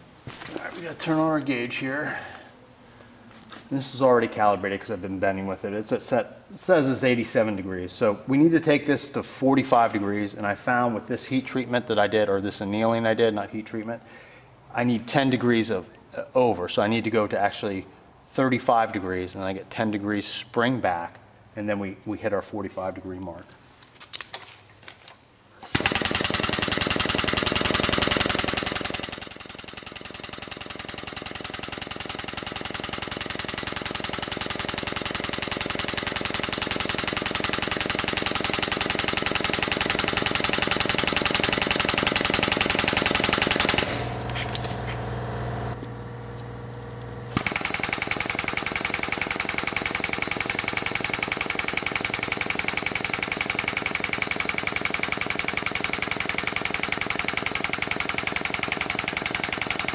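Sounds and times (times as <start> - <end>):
air-driven pump chattering: 25.6 - 45.1, 47.3 - 59.9.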